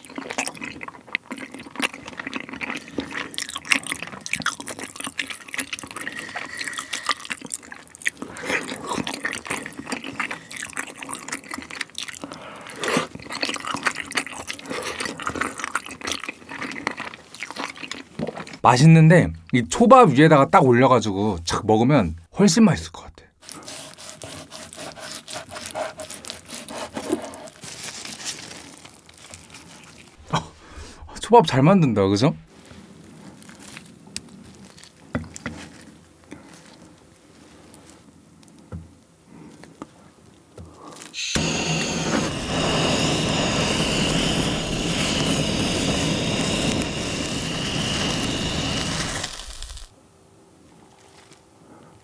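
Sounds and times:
blowtorch hissing and whistling: 6.0 - 7.4, 41.2 - 49.9
knife slicing raw fish: 23.6 - 27.4.

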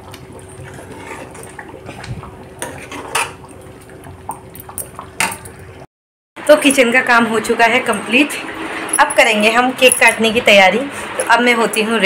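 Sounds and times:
metal ladle scraping iron pan: 2.6 - 3.4.

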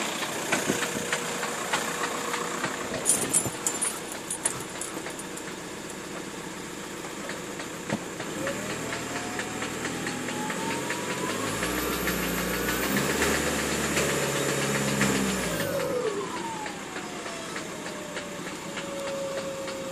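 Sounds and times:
diesel engine revving: 0.0 - 19.9
whine rising with revs: 8.2 - 19.9.

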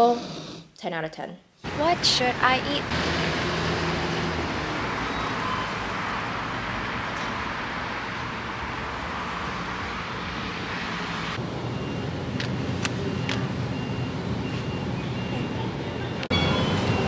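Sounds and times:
street traffic roar: 1.6 - 17.0.

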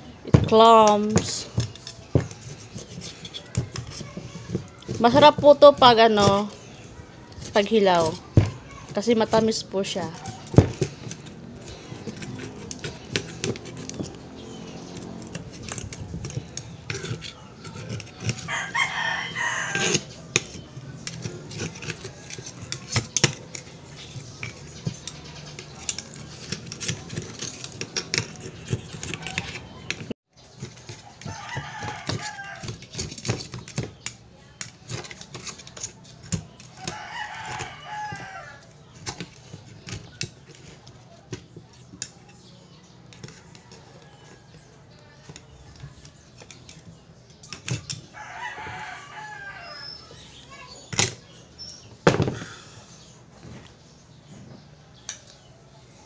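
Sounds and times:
rooster crowing: 18.4 - 20.1, 31.2 - 32.8, 36.8 - 38.7, 48.1 - 50.2.

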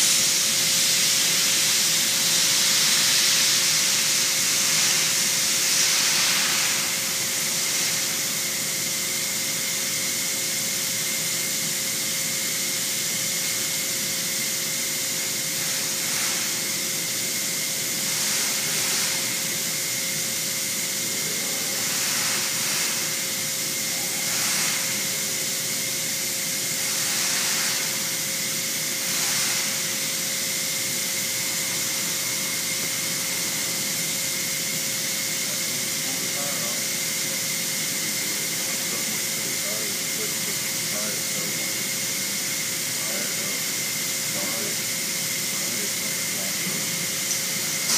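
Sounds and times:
steady hiss: 0.0 - 10.0, 14.4 - 34.2.

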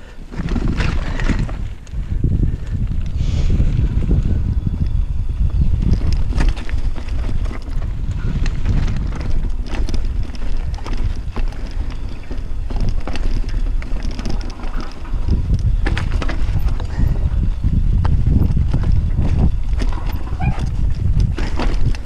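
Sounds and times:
bike rattling: 0.0 - 22.0
wind rumble on microphone: 0.0 - 22.0
tyres crunching over stones: 5.9 - 17.3, 17.9 - 22.0.

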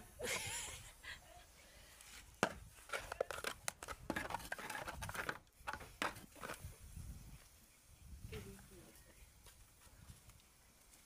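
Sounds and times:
wooden stick scraping a cooking pot: 2.4 - 6.7.

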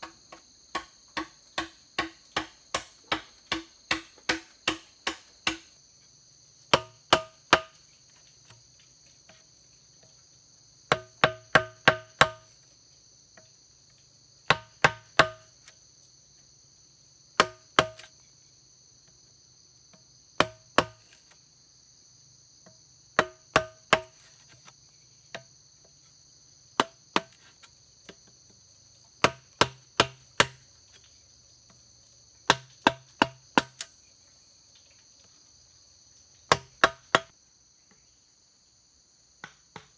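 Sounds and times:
mallet striking chisel into bamboo: 0.0 - 5.8, 6.7 - 7.8, 10.9 - 12.6, 14.5 - 15.7, 17.4 - 18.2, 20.4 - 21.3, 22.6 - 24.7, 29.2 - 30.7, 32.5 - 34.0, 36.5 - 37.3
insects buzzing: 0.0 - 39.9.

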